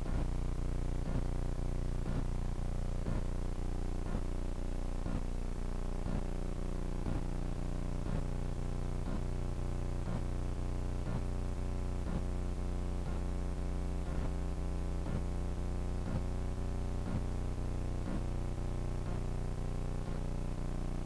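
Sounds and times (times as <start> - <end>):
background music with steady beat: 0.0 - 0.4, 1.0 - 1.4, 2.1 - 2.4, 3.0 - 3.3, 4.1 - 4.4, 5.0 - 5.4, 6.0 - 6.4, 7.0 - 7.4, 8.0 - 9.4, 10.0 - 14.4, 15.0 - 15.4, 16.0 - 16.4, 17.0 - 18.4, 19.1 - 19.3, 20.1 - 20.7.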